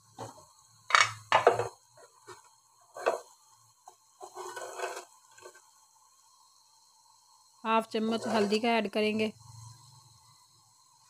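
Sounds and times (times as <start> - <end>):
ladle scraping a pot: 1.0 - 3.3, 4.2 - 5.6, 8.1 - 8.6.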